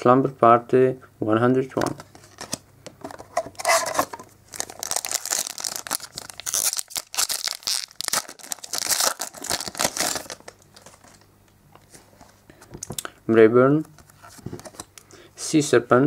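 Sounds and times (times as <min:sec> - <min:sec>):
foil pack tearing and crinkling: 0:03.6 - 0:11.0.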